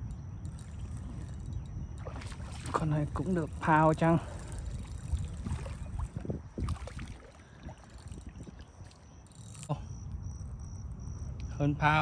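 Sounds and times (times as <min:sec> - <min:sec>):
fish splashing in water: 0:02.0 - 0:09.2.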